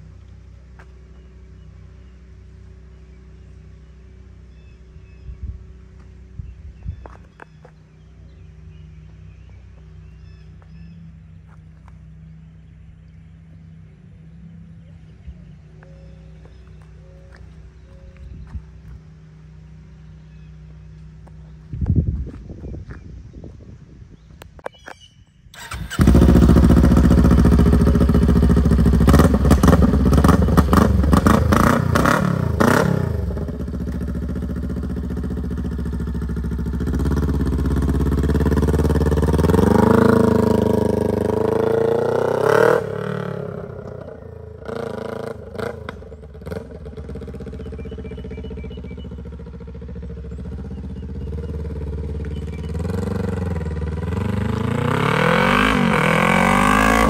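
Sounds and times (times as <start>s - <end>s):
motorcycle engine revving: 25.5s - 57.0s.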